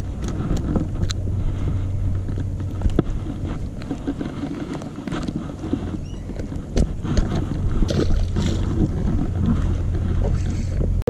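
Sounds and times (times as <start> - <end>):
small clicks and knocks: 0.0 - 1.2
boat motor humming: 0.0 - 11.0
wind buffeting microphone: 0.0 - 11.0.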